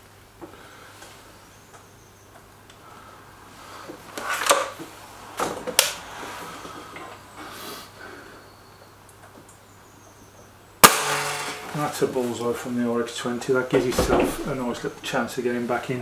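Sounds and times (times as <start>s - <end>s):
air rifle firing: 10.8s - 11.8s.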